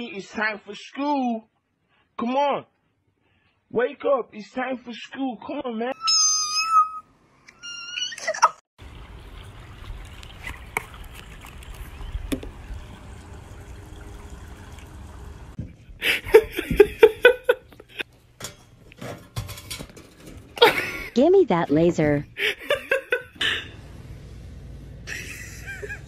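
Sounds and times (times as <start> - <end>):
cat meowing high-pitched: 6.0 - 7.0.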